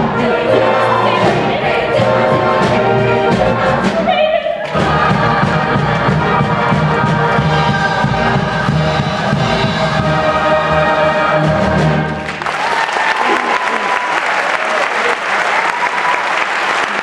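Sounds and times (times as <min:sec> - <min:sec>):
massed singing voices: 0:00.0 - 0:12.3
orchestra with brass: 0:00.0 - 0:12.4.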